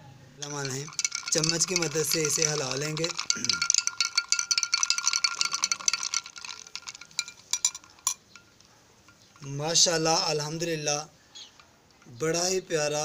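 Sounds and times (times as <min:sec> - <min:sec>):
spoon stirring ice in glass: 0:00.4 - 0:10.6.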